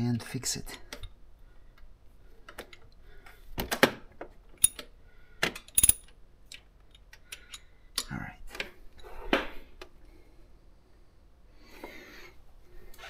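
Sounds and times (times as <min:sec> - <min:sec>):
metal hand tools clinking: 0:05.7 - 0:06.1.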